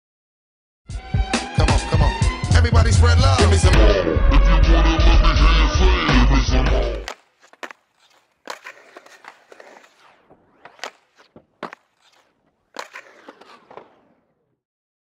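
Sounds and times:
skateboard wheels rolling on concrete: 6.6 - 14.6
skateboard clacking on coping: 6.9 - 14.2.

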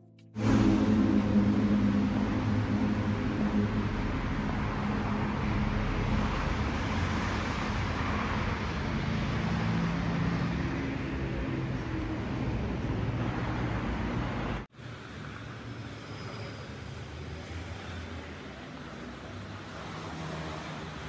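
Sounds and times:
road traffic rumble: 0.3 - 21.0
low engine hum: 0.4 - 14.7.

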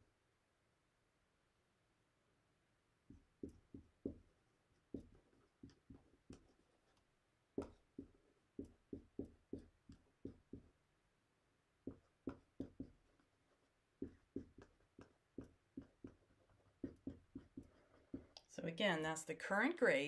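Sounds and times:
marker tapping on whiteboard: 3.1 - 4.3, 4.9 - 6.6, 7.6 - 10.8, 11.8 - 13.2, 14.0 - 18.5.

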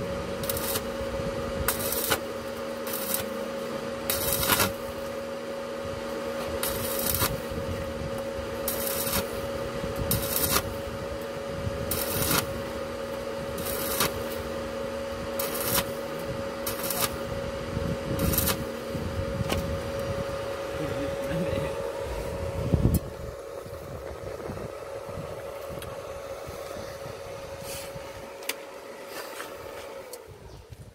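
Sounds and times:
welding arc crackling and hissing: 0.0 - 24.6
steady hum: 0.0 - 30.9.

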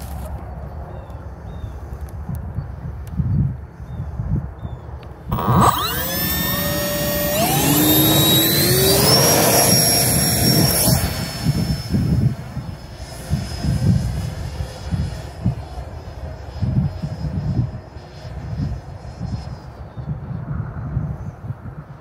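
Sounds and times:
wind buffeting microphone: 0.8 - 22.0
model jet motor whine: 5.2 - 19.8.

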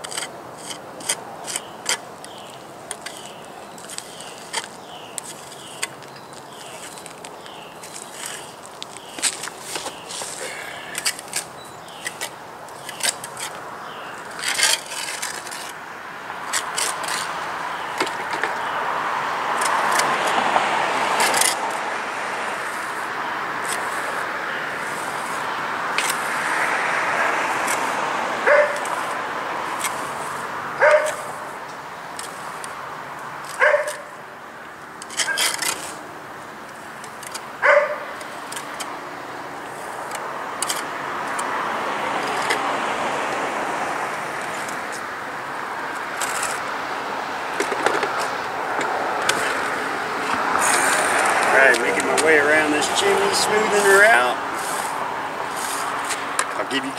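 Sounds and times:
road traffic hiss: 0.0 - 56.9
dog barking: 28.4 - 28.8, 30.8 - 31.3, 33.6 - 34.1, 37.6 - 38.1.

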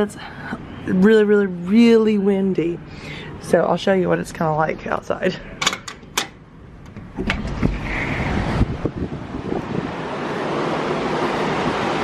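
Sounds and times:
strong wind buffeting microphone: 6.8 - 12.0
heavy surf: 7.1 - 12.0.

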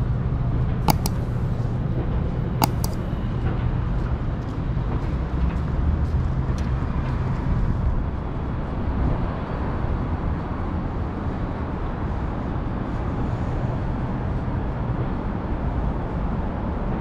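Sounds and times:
faint clicks: 0.9 - 1.2, 2.6 - 3.0.

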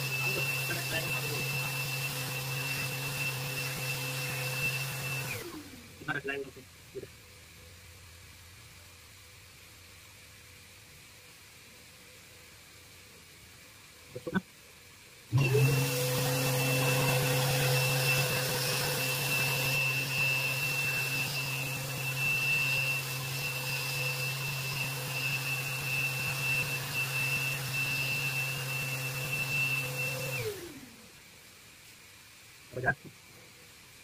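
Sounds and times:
electric sander whining: 0.0 - 5.8, 15.3 - 30.9.

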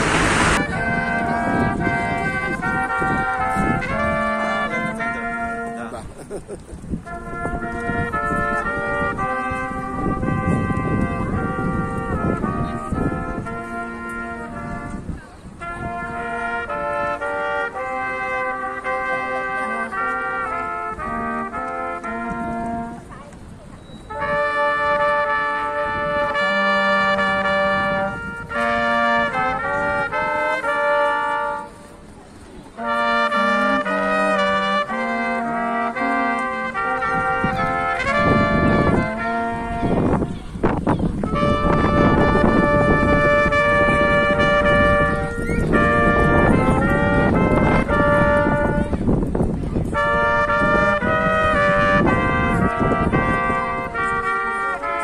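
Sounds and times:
low outdoor rumble: 0.0 - 2.6
trombone: 0.0 - 23.4, 24.0 - 55.0
brass trio playing slow tune: 0.0 - 55.0
trumpet: 0.0 - 55.0.

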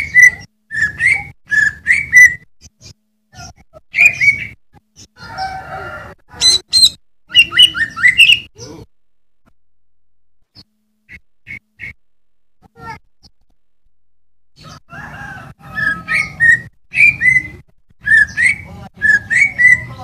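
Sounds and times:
bird singing: 0.0 - 8.8, 10.5 - 12.0, 14.6 - 20.0.

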